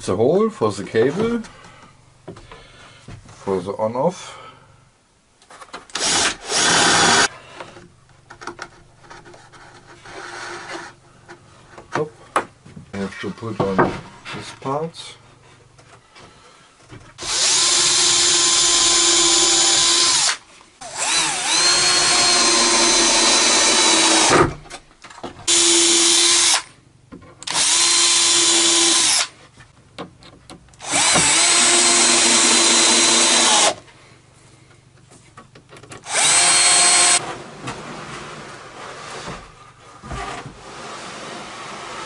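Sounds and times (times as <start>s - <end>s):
drill driving screws into wood: 5.9s - 7.3s, 17.2s - 24.6s, 25.5s - 26.7s, 27.4s - 29.3s, 30.8s - 33.8s, 36.0s - 37.2s.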